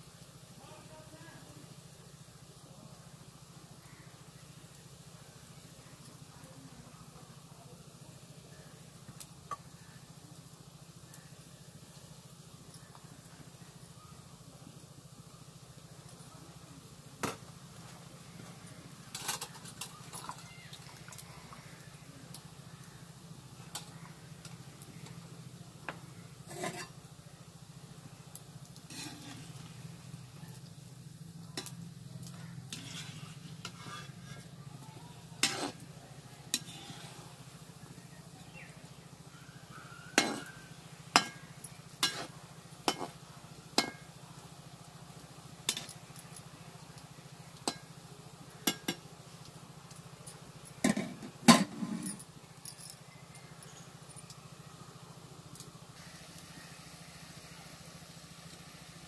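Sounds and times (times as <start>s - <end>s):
fritters sizzling in oil: 0.0s - 59.0s
metal spatula scraping pan: 26.5s - 27.0s, 28.9s - 29.6s, 32.7s - 34.5s, 35.4s - 35.8s, 36.5s - 37.3s, 42.0s - 42.3s.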